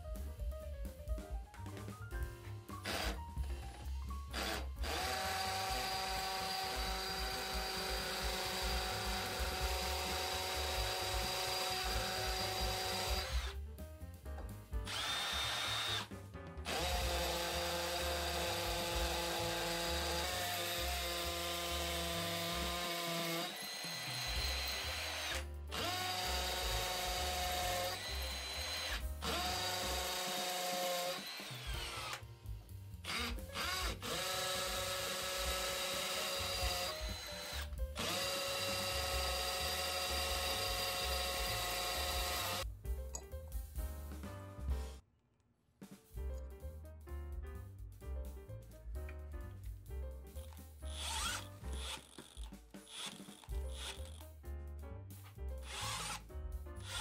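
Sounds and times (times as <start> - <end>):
hammer drill boring into brick: 2.8 - 3.2, 4.3 - 13.6, 14.9 - 16.1, 16.7 - 32.2, 33.0 - 42.6, 50.9 - 54.3, 55.6 - 56.2.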